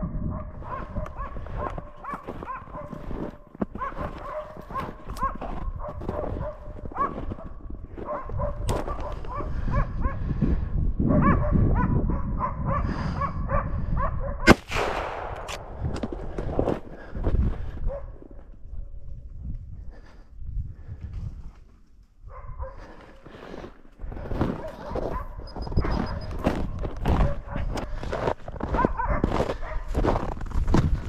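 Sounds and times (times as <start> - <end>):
dogs barking: 0.1 - 10.3, 11.1 - 14.4, 17.8 - 18.4, 22.3 - 23.2, 24.5 - 28.0, 28.6 - 30.0
rifle shot echoing: 14.5 - 16.8.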